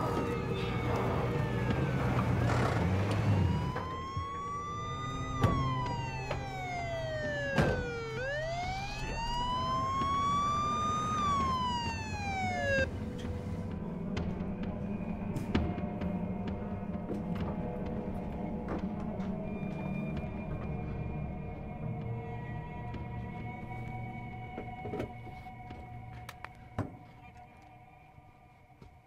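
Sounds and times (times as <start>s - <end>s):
car engine running low: 0.0s - 12.9s
police siren wailing: 0.0s - 12.9s.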